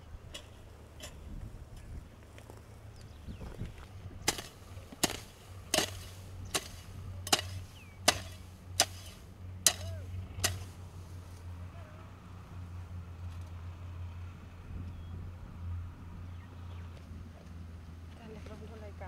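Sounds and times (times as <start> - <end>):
steady low hum: 0.0 - 19.0
hoe chopping dry soil: 4.2 - 10.8.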